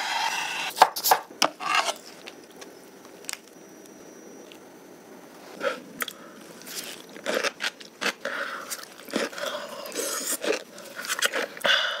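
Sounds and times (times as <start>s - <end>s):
chewing and biting food: 6.0s - 11.6s
cucumber crunches: 6.0s - 11.6s.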